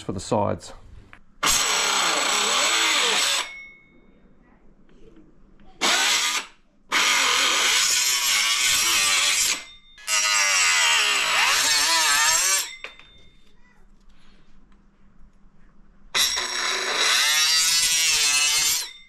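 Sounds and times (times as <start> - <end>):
power tool cutting plastic: 1.4 - 3.6, 5.8 - 12.7, 16.2 - 19.0.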